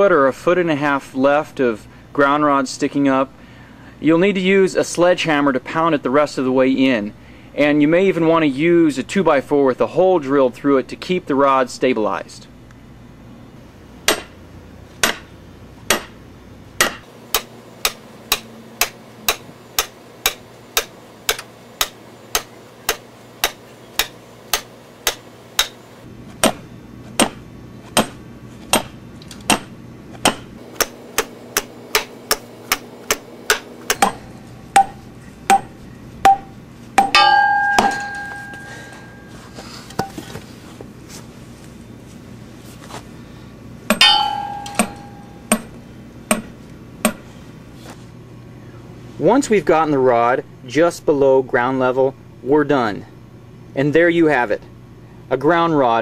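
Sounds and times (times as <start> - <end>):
sledgehammer striking metal rod: 14.1 - 14.4, 15.0 - 15.3, 15.9 - 16.2, 16.8 - 25.8, 26.4 - 26.6, 28.0 - 28.9, 29.5 - 39.4, 43.9 - 46.5
metallic clatter with ringing: 37.0 - 39.6, 43.9 - 45.7.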